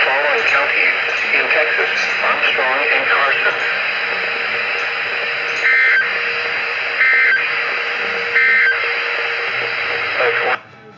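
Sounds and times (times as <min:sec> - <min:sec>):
radio hiss: 0:00.0 - 0:10.6
two-tone warbling data bursts: 0:01.8 - 0:10.5.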